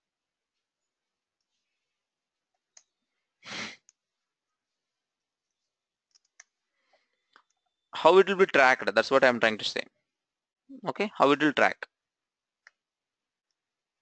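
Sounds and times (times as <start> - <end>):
faint keyboard clicks: 5.5 - 7.7.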